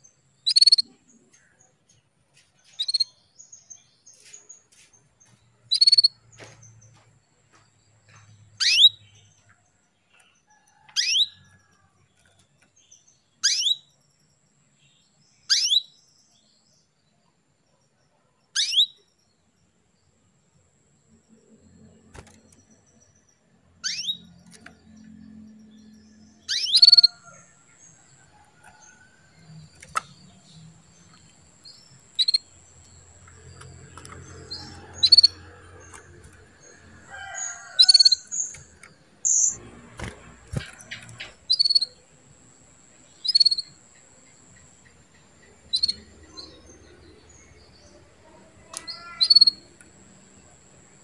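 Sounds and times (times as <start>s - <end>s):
canary chirping: 0.0s - 1.1s, 2.7s - 3.2s, 3.9s - 7.0s, 8.3s - 9.4s, 10.7s - 11.4s, 12.6s - 14.0s, 15.4s - 16.0s, 18.5s - 19.1s, 23.7s - 39.6s, 40.4s - 42.1s, 42.9s - 47.8s, 48.7s - 49.8s.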